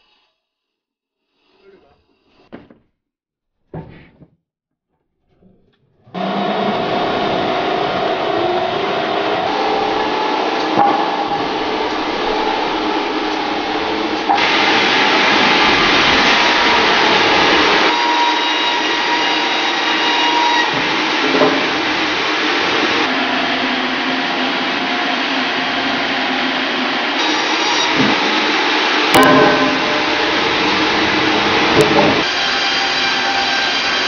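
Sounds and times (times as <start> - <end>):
band saw cutting log: 6.1 - 26.2, 27.1 - 34.0.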